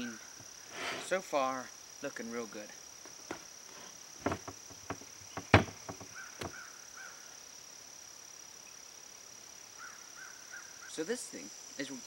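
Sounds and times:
insect drone: 0.0s - 12.0s
metal treestand knocking and clicking: 4.2s - 6.6s.

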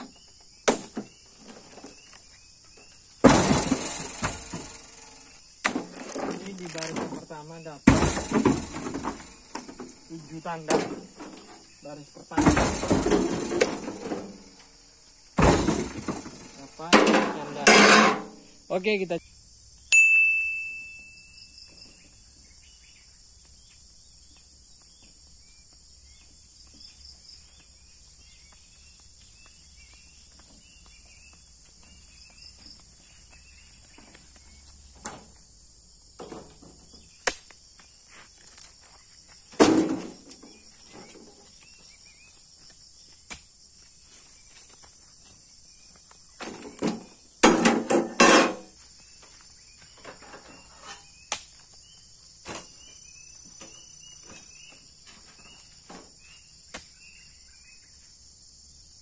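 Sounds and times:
knocks and thumps: 0.0s - 2.2s, 3.2s - 5.0s, 5.6s - 11.7s, 12.3s - 14.6s, 15.4s - 18.4s, 36.1s - 37.1s, 39.5s - 41.5s, 46.4s - 48.8s
insects chirring: 0.0s - 59.0s.

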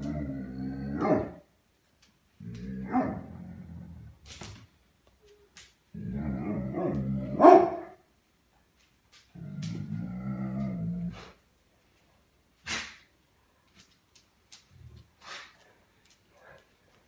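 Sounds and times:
dog growling and barking: 0.0s - 1.5s, 2.4s - 4.2s, 5.9s - 8.0s, 9.4s - 11.4s.

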